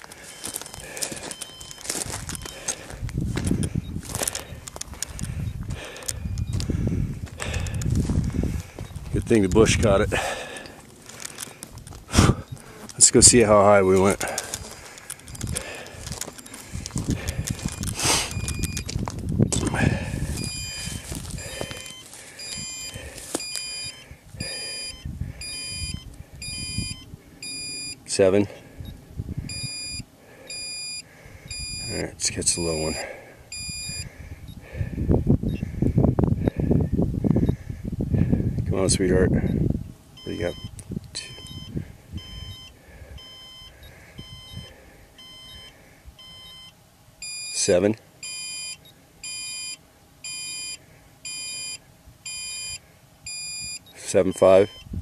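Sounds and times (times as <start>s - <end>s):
footsteps on gravel: 0.0s - 22.4s, 23.0s - 23.7s
high electronic beeps: 0.3s - 2.8s, 5.4s - 6.6s, 17.6s - 18.9s, 20.4s - 21.1s, 21.8s - 28.0s, 28.8s - 32.0s, 32.8s - 34.1s, 40.2s - 47.6s, 48.2s - 54.9s.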